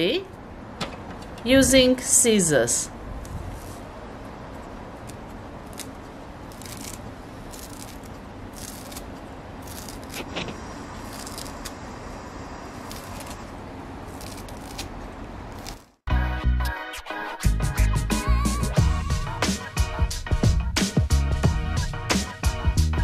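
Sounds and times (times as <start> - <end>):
scissors snipping herbs: 4.6 - 10.4, 11.0 - 11.8, 12.8 - 13.5, 14.1 - 16.0.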